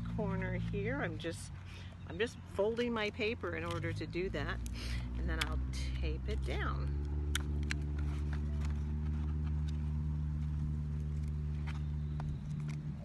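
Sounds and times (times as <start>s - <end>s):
steady low hum: 0.0s - 13.0s
paper and tape crackling: 7.0s - 13.0s.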